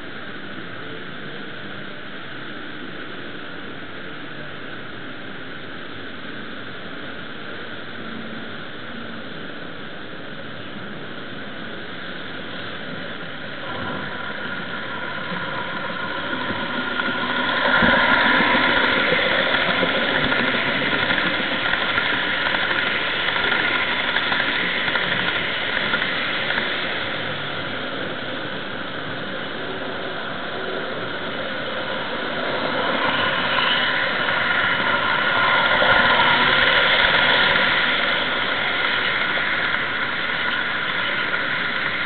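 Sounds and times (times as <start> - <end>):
model train running: 12.7 - 42.0.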